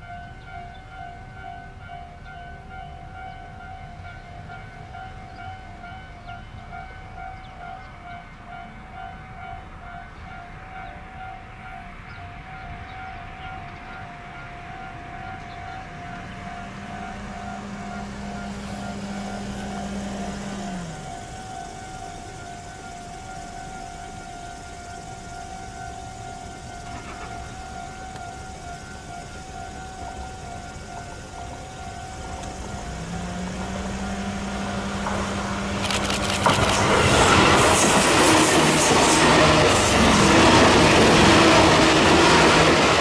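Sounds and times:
electric train rumbling: 0:00.0 - 0:43.0
level crossing alarm ringing: 0:00.0 - 0:43.0
low hum sliding down in pitch: 0:31.9 - 0:35.8.

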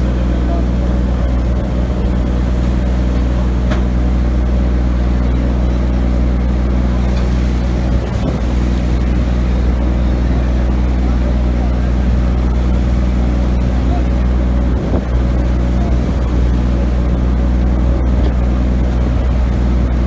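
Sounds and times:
boat engine drone: 0:00.0 - 0:20.0.

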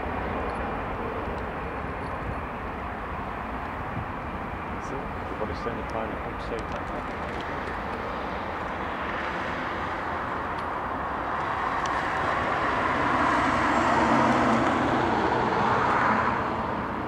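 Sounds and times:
jet engines roaring at takeoff: 0:00.0 - 0:17.0.

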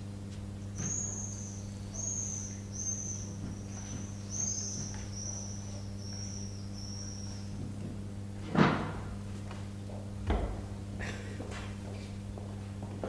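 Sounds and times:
low electrical hum: 0:00.0 - 0:13.0
bird whistling song: 0:00.8 - 0:07.6.

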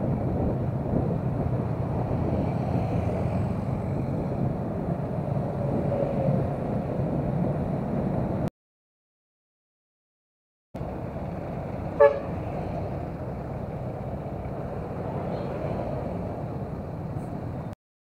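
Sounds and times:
motorcycle engine and wind: 0:00.0 - 0:08.5, 0:10.8 - 0:17.7
vehicle horn toot: 0:12.0 - 0:12.4.

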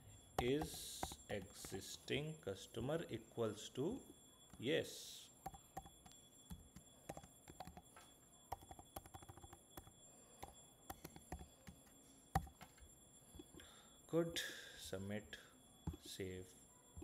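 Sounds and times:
keyboard typing clicks: 0:00.4 - 0:01.9, 0:05.4 - 0:07.9, 0:08.5 - 0:11.8, 0:12.4 - 0:12.7.

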